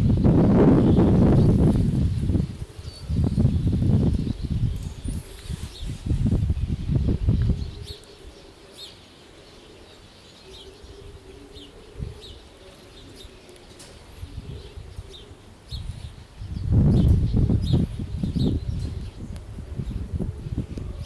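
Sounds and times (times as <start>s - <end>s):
flock of birds chirping: 0.0s - 21.0s
gusty low rumble: 16.4s - 21.0s.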